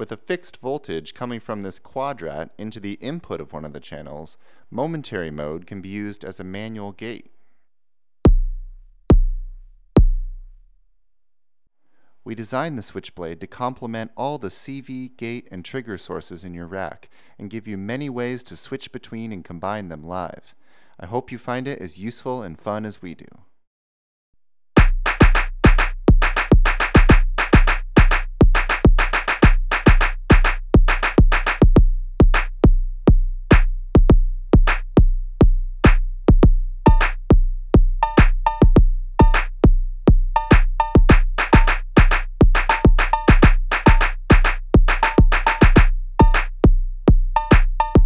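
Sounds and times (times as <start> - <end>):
deep kick drum: 8.3 - 10.5, 24.8 - 48.0
sharp percussive hits: 24.8 - 32.5, 34.6 - 34.9, 36.9 - 37.2, 38.0 - 39.5, 40.4 - 46.5, 47.4 - 48.0.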